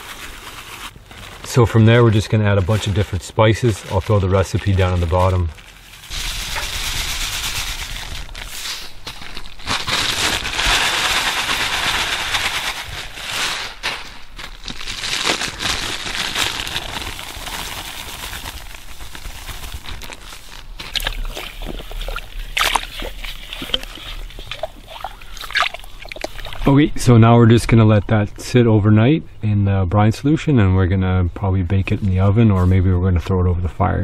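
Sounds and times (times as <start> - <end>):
plastic bag crinkling: 0.0 - 26.7
hands sloshing in liquid: 20.8 - 26.7.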